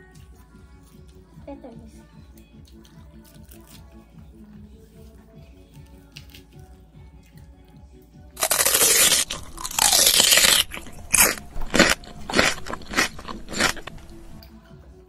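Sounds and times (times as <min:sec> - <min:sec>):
loud crunching of food: 0:08.4 - 0:14.5.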